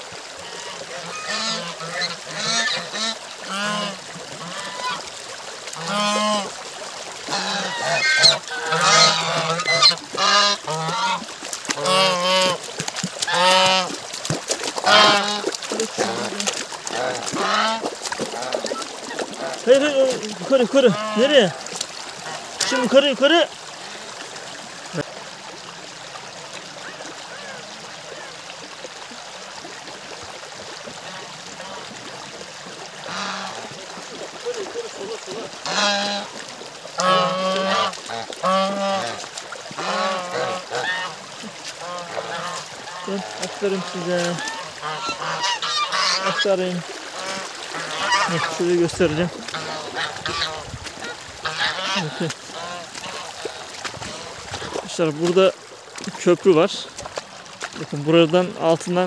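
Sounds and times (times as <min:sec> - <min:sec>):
stream running: 0:00.0 - 0:59.0
geese honking: 0:00.4 - 0:05.1, 0:05.8 - 0:06.5, 0:07.2 - 0:12.6, 0:13.2 - 0:14.0, 0:14.8 - 0:23.5, 0:33.0 - 0:33.7, 0:34.5 - 0:36.4, 0:37.0 - 0:39.2, 0:39.8 - 0:41.2, 0:41.8 - 0:54.7.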